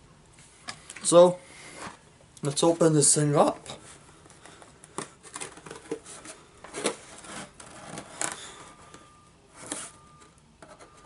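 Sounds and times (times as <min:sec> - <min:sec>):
cardboard box scraping and rustling: 0:05.8 - 0:08.3.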